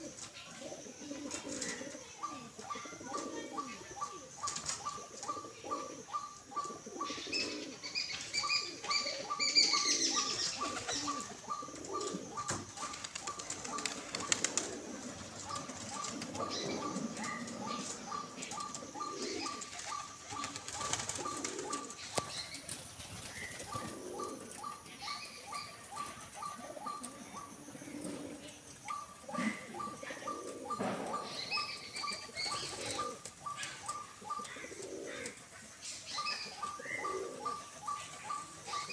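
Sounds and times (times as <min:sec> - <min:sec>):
pigeons cooing: 0:00.0 - 0:38.9
wings flapping: 0:12.5 - 0:17.0, 0:19.4 - 0:24.0.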